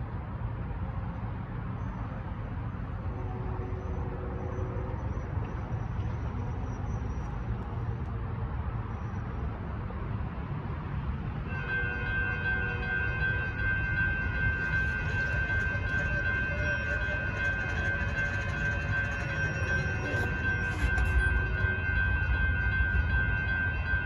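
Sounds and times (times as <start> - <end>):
road traffic rumble: 0.0 - 24.0
railroad crossing bell ringing: 11.0 - 24.0.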